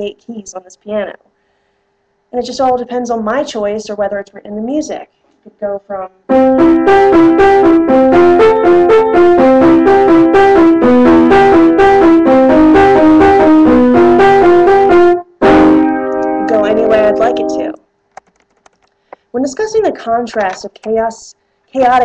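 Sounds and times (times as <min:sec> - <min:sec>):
piano broken chords: 0:06.3 - 0:17.8.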